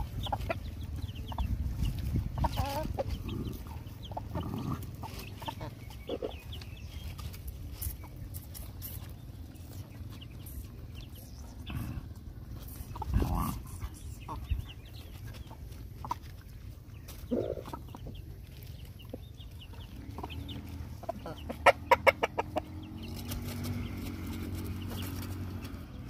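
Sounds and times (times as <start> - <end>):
chickens clucking: 0.0 - 26.0.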